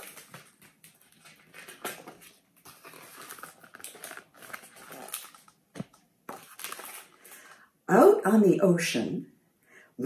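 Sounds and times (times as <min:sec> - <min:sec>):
book page turning: 0:00.0 - 0:07.4.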